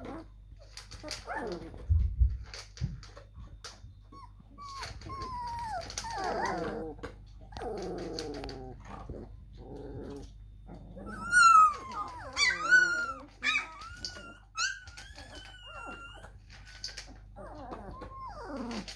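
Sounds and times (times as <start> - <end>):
puppies whining: 0.0 - 18.9
puppies squealing: 4.1 - 7.0, 11.0 - 16.4, 17.4 - 18.9.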